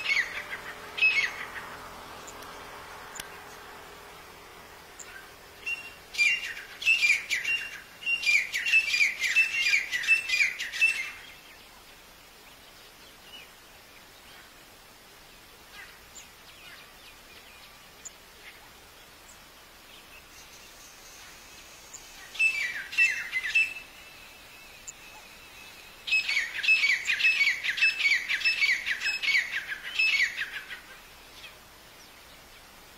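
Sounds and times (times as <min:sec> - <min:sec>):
francolin calling: 0:00.0 - 0:11.7, 0:20.0 - 0:32.4.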